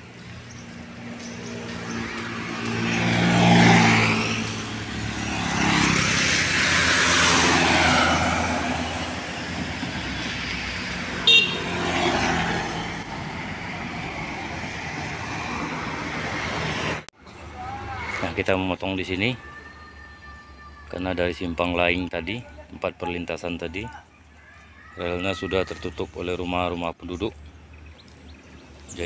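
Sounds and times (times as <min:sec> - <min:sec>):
vehicles passing: 0:00.0 - 0:29.0
short horn beep: 0:11.2 - 0:11.7.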